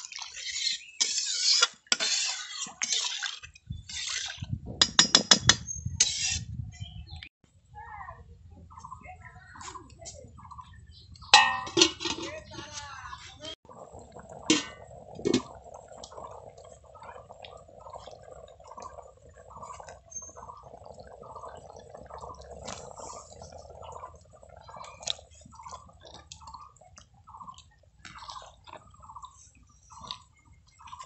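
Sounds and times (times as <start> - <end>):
curry simmering in a wok: 0.0 - 4.5, 13.8 - 31.0.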